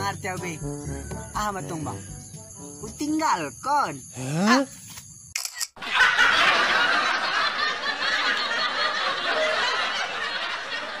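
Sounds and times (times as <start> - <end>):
canned audience laughter: 5.8 - 11.0.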